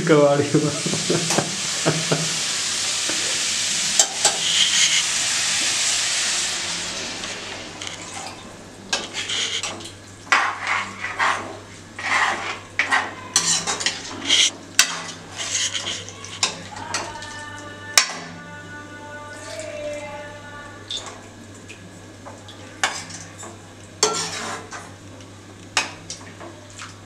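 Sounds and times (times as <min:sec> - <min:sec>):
curry sizzling in a pan: 0:00.2 - 0:18.2, 0:22.8 - 0:26.1
ladle scraping and clinking pan: 0:08.9 - 0:17.2, 0:24.0 - 0:24.9.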